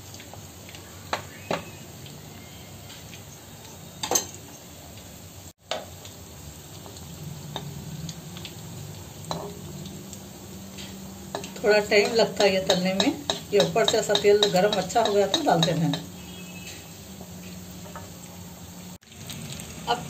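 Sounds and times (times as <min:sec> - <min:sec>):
food sizzling in hot oil: 0:00.0 - 0:20.0
metal spoon clinking on pan: 0:04.0 - 0:04.6, 0:09.3 - 0:09.6, 0:11.3 - 0:16.1.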